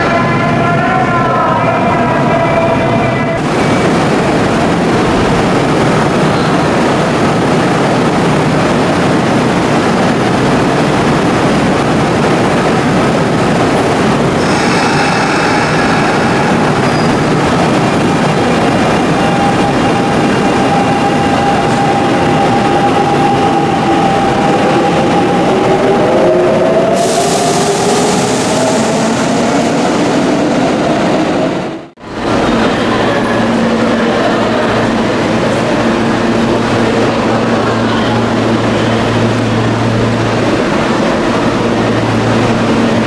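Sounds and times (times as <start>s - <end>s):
electric train rolling rumble: 0.0s - 43.0s.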